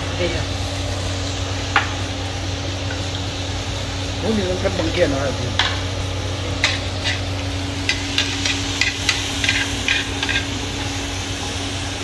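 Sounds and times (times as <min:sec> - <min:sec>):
chopsticks tapping plates and grill: 0:01.7 - 0:02.0, 0:04.6 - 0:05.9, 0:06.5 - 0:11.5.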